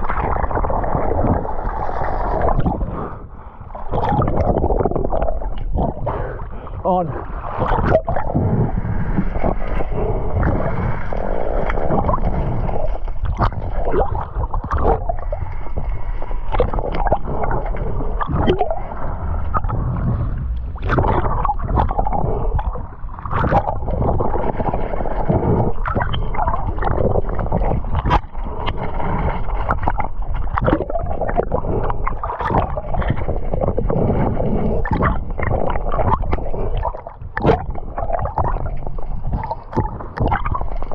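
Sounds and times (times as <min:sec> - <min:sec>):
water gurgling and sloshing: 0:00.0 - 0:40.9
knocks and splashes: 0:11.6 - 0:18.9, 0:19.5 - 0:34.1, 0:34.8 - 0:40.9.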